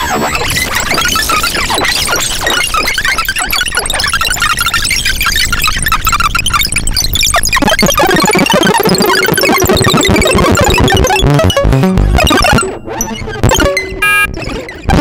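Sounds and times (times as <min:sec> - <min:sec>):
synthesizer chirps and blips: 0:00.0 - 0:15.0
synthesizer held tone: 0:07.5 - 0:15.0.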